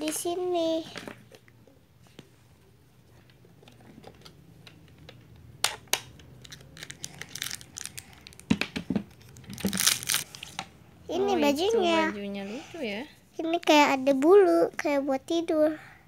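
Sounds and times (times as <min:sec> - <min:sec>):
crinkly rustling: 0:06.5 - 0:08.4, 0:09.2 - 0:10.6.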